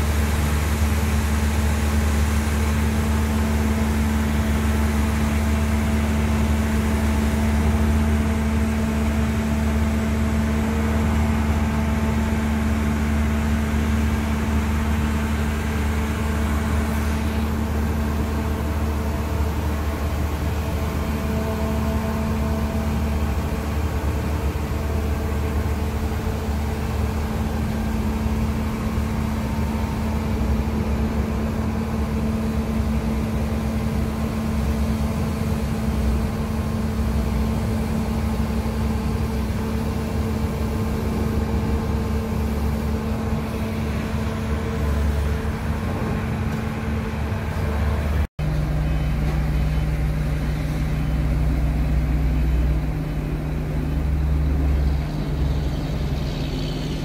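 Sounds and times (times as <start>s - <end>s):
excavator diesel engine running: 0.0s - 57.0s.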